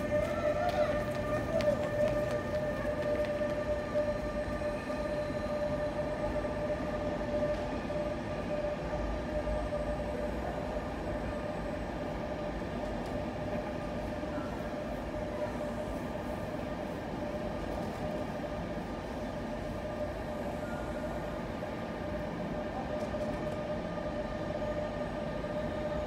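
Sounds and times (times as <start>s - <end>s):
train rolling past: 0.0s - 26.0s.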